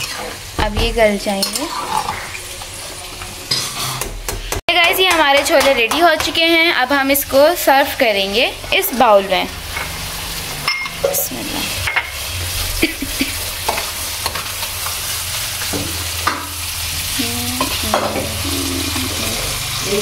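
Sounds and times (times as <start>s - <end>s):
food sizzling in a frying pan: 0.0s - 20.0s.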